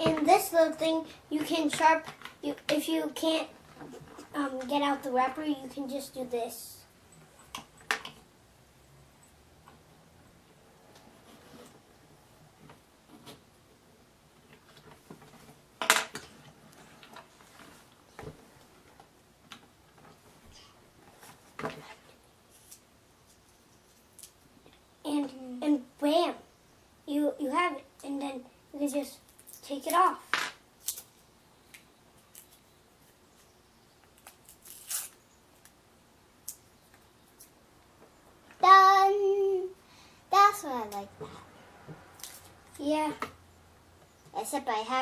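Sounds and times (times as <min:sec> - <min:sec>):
paper wrappers tearing: 0:30.8 - 0:31.2, 0:34.2 - 0:35.2.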